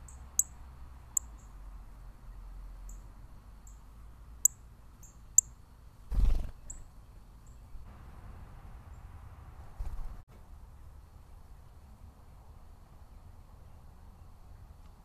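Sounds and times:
bird wingbeats: 6.1 - 6.7, 9.8 - 10.2.

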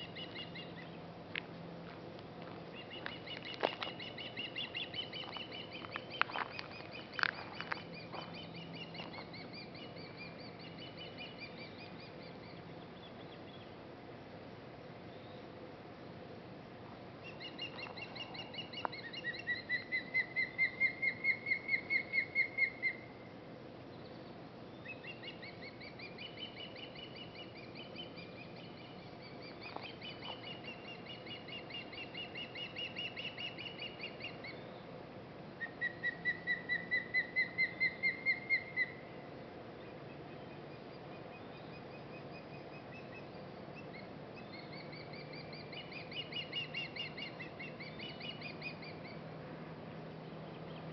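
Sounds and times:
osprey alarm calls: 0.0 - 1.0, 2.7 - 12.6, 17.2 - 23.1, 24.8 - 34.7, 35.6 - 39.1, 40.5 - 49.3
young birds chirping: 0.0 - 1.1, 1.8 - 13.8, 17.2 - 23.1, 23.9 - 35.0, 35.6 - 39.0, 39.9 - 50.9.

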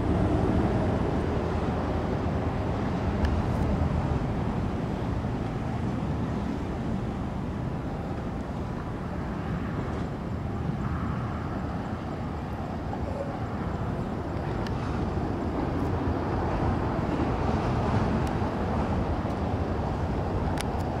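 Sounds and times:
jet engine rumble: 0.0 - 21.0.

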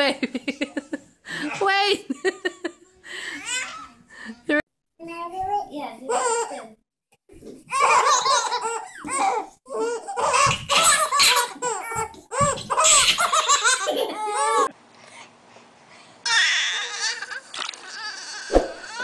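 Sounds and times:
babies laughing: 7.7 - 14.8, 16.3 - 19.0.

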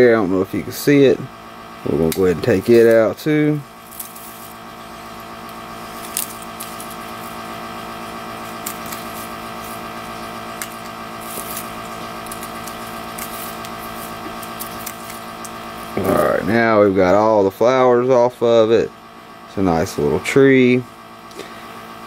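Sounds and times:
steady background hum: 0.0 - 22.0
hand nippers snipping: 3.8 - 7.4, 8.4 - 16.3.

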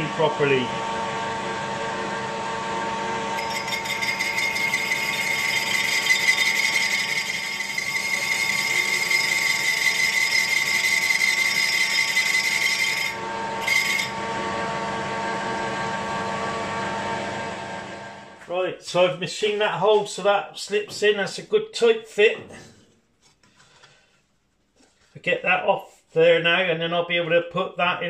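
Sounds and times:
metal lathe hum: 0.0 - 18.4
high cutting squeal: 3.3 - 14.2.

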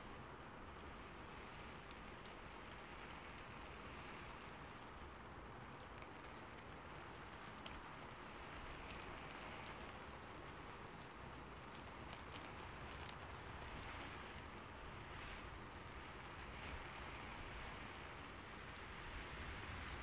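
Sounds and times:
light ticks: 0.1 - 14.7.

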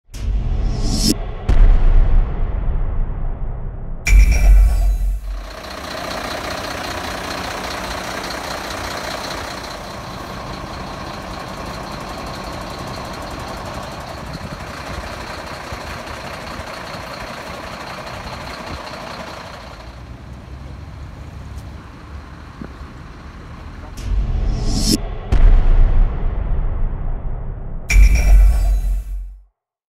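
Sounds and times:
vehicle engine idling: 4.9 - 24.9.

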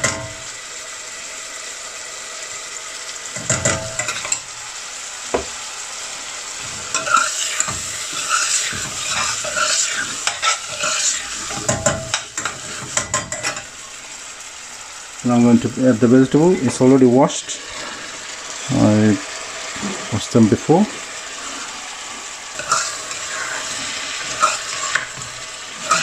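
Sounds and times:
chicken sizzling in oil: 0.0 - 26.0
metal spoon scraping a pan: 3.4 - 4.4, 6.6 - 13.7, 22.6 - 26.0.

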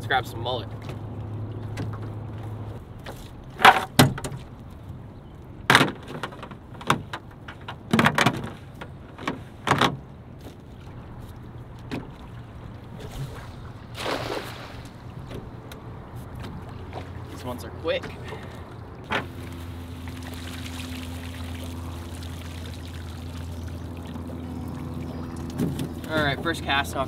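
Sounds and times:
knocks and thumps against a boat: 0.7 - 4.7, 5.6 - 13.9, 15.1 - 19.8, 24.1 - 27.0
net splashing into water: 13.0 - 15.2, 19.1 - 26.0.

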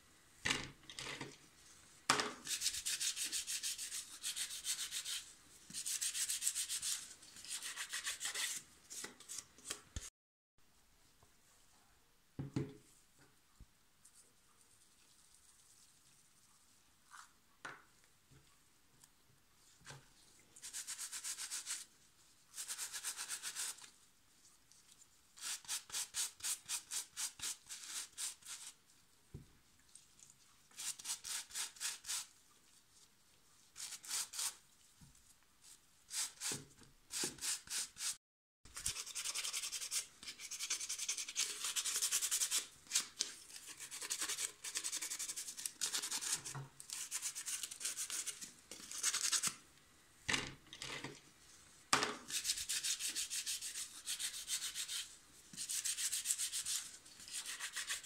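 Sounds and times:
sandpaper rubbing: 2.5 - 8.6, 38.8 - 49.5, 52.3 - 58.0.

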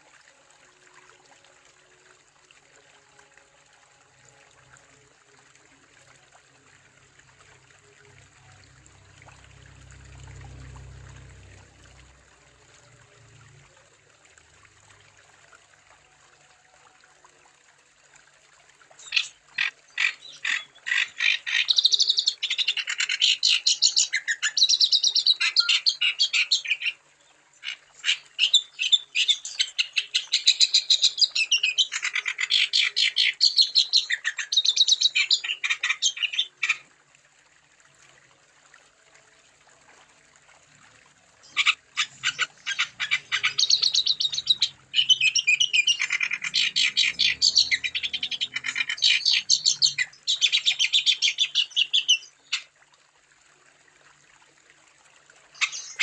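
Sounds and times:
songbird singing: 41.4 - 52.7.

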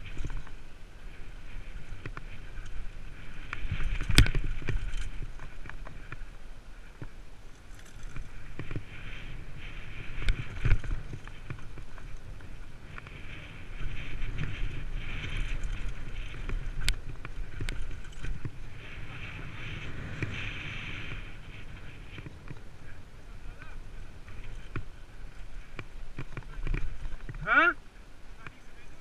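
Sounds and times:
mountain bike rumbling over rocky trail: 0.0 - 27.6
bike hitting bumps with sharp knocks: 1.7 - 7.2.

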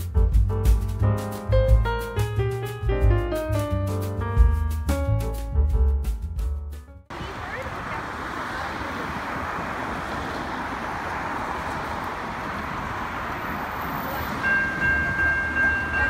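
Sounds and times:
road traffic passing: 7.1 - 16.0
crossing bells ringing: 13.2 - 16.0.

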